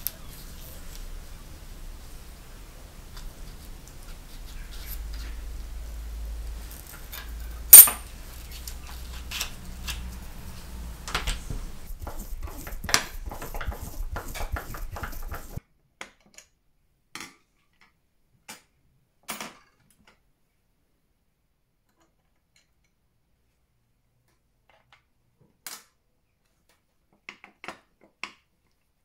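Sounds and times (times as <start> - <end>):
low hum: 0.0 - 15.6
metal clicks and clinks of knife: 7.8 - 8.0.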